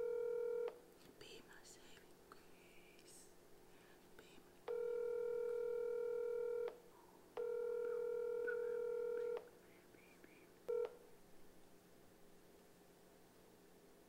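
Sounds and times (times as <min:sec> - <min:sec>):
telephone ringing tone: 0:00.0 - 0:00.7, 0:04.7 - 0:06.8, 0:07.4 - 0:09.5, 0:10.7 - 0:11.0.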